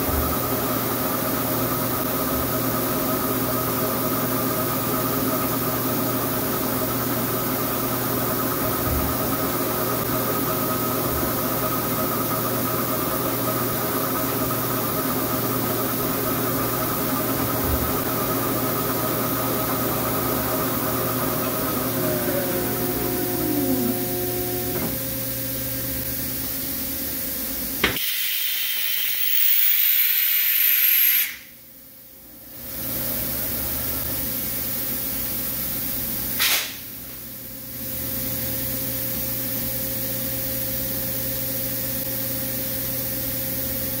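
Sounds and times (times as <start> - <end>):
lathe hum and hiss: 0.1 - 30.8
falling tone: 20.2 - 25.0.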